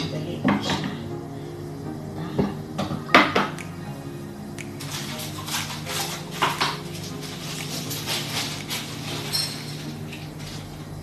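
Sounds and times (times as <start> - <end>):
steady low hum: 0.0 - 11.0
utensils and containers knocking: 4.8 - 10.2.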